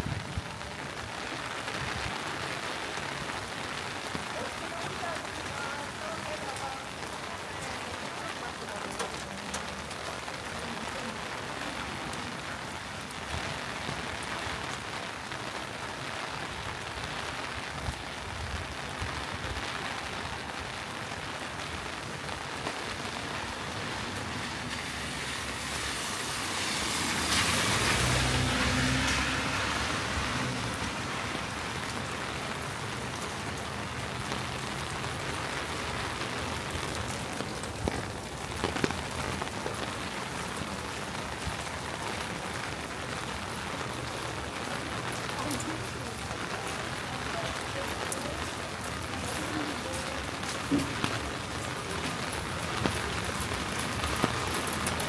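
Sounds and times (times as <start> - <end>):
rain falling on street: 0.0 - 55.0
vehicle passing on wet road: 0.0 - 55.0.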